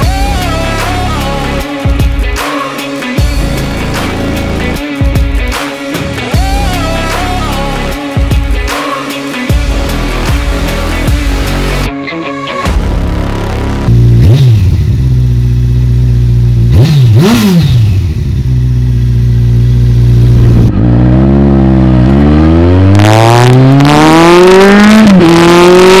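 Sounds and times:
motorcycle engine revving: 3.2s - 8.0s, 12.7s - 26.0s.

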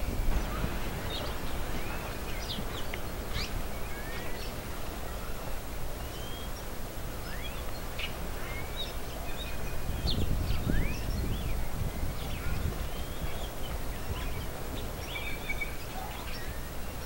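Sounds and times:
steady low rumble: 0.0s - 15.2s
small birds chirping: 0.0s - 17.0s.

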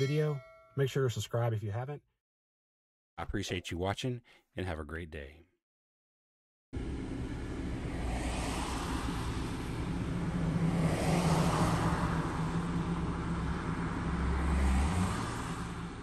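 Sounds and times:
road noise inside car: 6.8s - 16.0s
vehicles passing: 6.8s - 16.0s.

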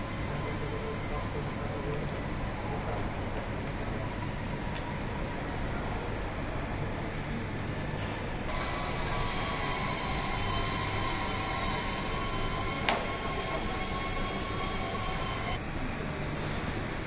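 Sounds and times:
factory machinery noise: 0.0s - 17.0s
thin high whine: 8.5s - 15.6s.

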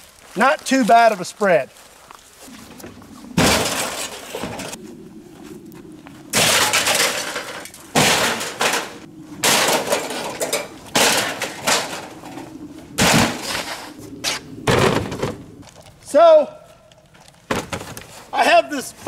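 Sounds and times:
loud metallic crashes: 3.4s - 4.8s, 6.4s - 12.2s, 13.0s - 13.8s
metal table clanking and clattering: 6.4s - 12.4s.

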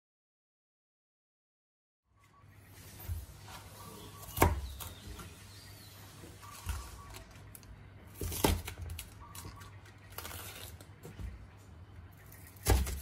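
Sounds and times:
knife chopping on wooden board: 4.0s - 5.3s, 12.6s - 13.0s
cabbage leaves crinkling: 6.3s - 11.1s.

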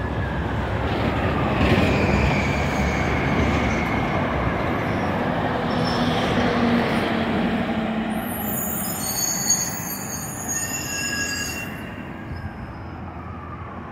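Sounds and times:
high-pitched squeal: 8.1s - 13.1s.

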